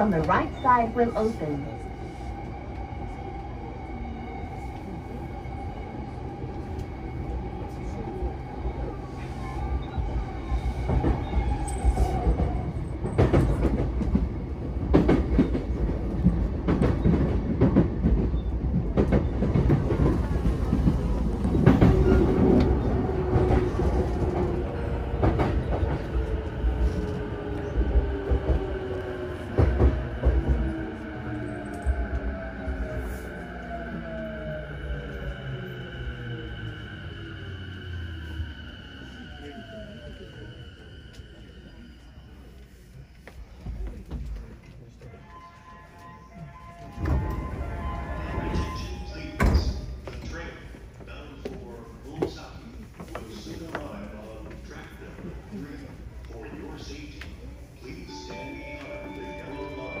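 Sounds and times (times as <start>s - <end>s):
train wheels rumbling on rails: 0.0s - 42.4s.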